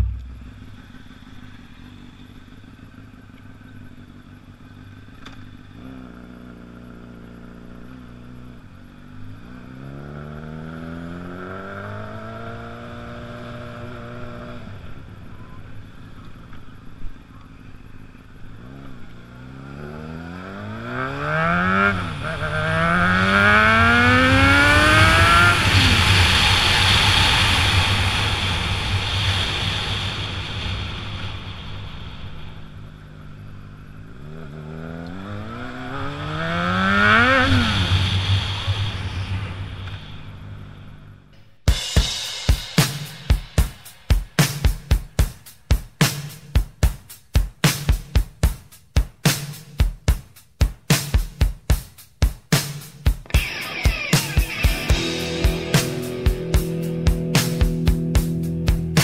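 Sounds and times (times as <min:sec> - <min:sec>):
motorcycle engine revving: 0:00.0 - 0:47.0, 0:52.5 - 0:59.0
wind rushing over microphone: 0:24.2 - 0:32.8.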